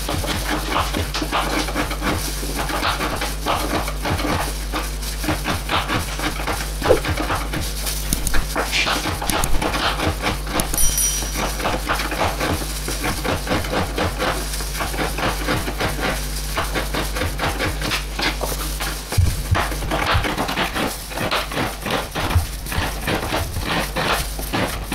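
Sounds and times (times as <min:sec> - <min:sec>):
knife chopping on plastic board: 0:05.4 - 0:10.8.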